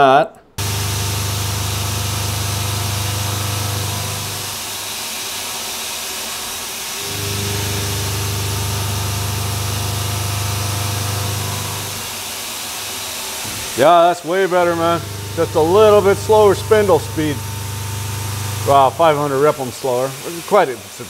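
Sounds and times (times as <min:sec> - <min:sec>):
end mill cutting steel hum: 0:00.6 - 0:21.0
steady hiss: 0:09.6 - 0:21.0.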